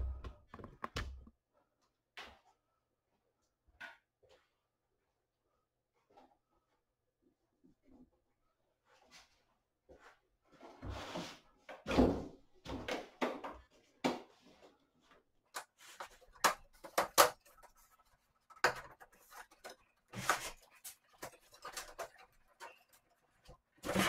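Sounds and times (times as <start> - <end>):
plastic scrapes and knocks: 15.6 - 24.0.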